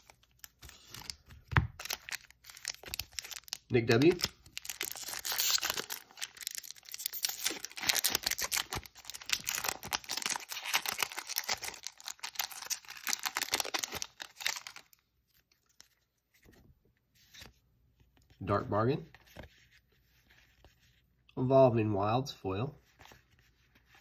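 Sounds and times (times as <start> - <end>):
foil wrapper tearing and crinkling: 0.0 - 15.0.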